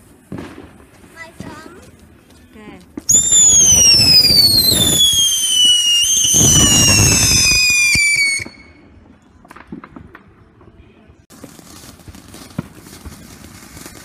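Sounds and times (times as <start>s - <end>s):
firework cracks: 3.1s - 8.7s, 11.3s - 14.0s
firework shrill falling whistle: 3.1s - 8.8s.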